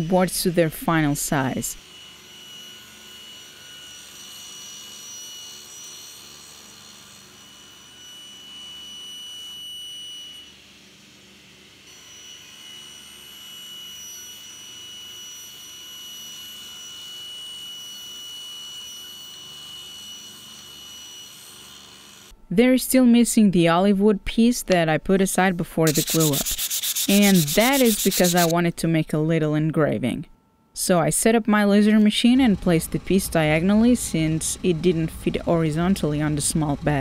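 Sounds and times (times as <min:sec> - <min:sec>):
table saw whining: 0:01.8 - 0:10.8, 0:11.9 - 0:22.3, 0:25.9 - 0:28.5.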